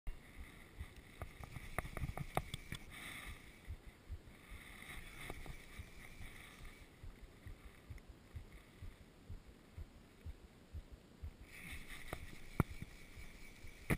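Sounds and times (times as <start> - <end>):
sharp clicks: 0.9 - 2.9
sleeve rustling against camera: 4.6 - 8.8, 11.5 - 13.9.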